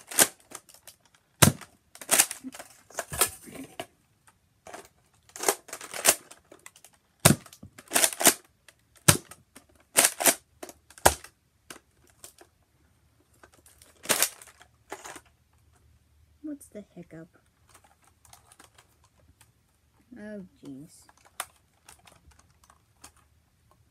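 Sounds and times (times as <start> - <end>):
toy blaster plastic clacks: 0.0 - 3.4, 4.7 - 12.4, 13.5 - 15.3.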